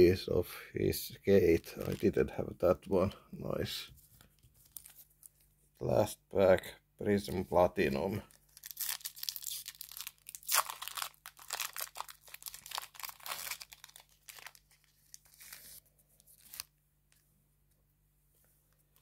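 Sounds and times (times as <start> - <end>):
plastic wrapper tearing and crinkling: 1.6 - 2.2, 4.6 - 5.4, 8.2 - 16.7.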